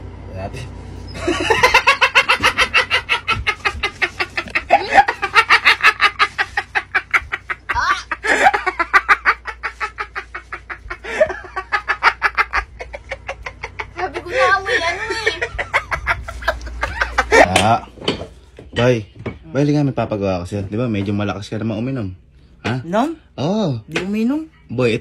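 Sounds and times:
person cackling laughter: 0:01.2 - 0:17.6.

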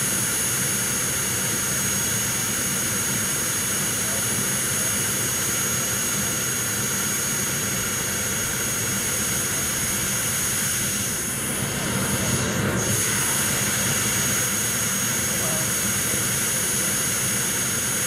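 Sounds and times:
jet turbine running: 0:00.0 - 0:18.0.

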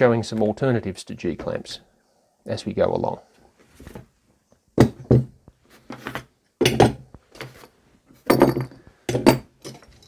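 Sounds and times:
metal clamps knocking on wood: 0:08.3 - 0:09.9.

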